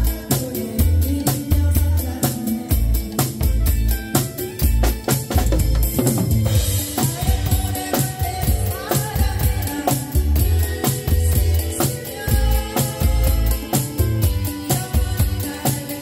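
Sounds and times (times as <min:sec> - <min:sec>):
drum kit playing pop beat: 0:00.0 - 0:16.0.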